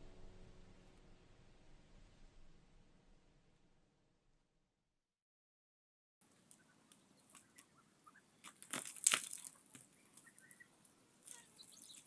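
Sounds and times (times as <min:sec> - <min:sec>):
crunching and crackling clicks: 0:08.4 - 0:12.0
faint high chirps: 0:09.9 - 0:12.0.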